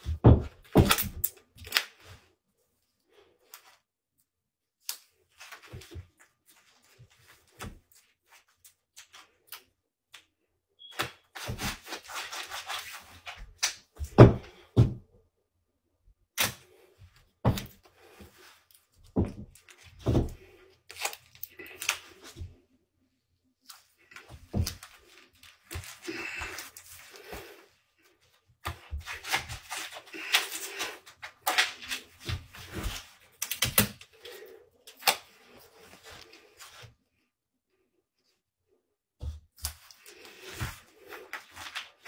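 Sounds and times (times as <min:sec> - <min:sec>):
knocks and thumps: 0:14.0 - 0:15.0.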